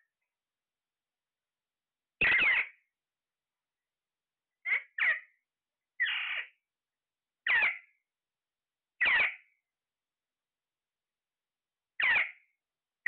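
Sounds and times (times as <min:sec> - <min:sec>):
parakeets squawking: 0:02.2 - 0:02.7, 0:04.7 - 0:05.2, 0:06.0 - 0:06.5, 0:07.5 - 0:07.8, 0:09.0 - 0:09.4, 0:12.0 - 0:12.4.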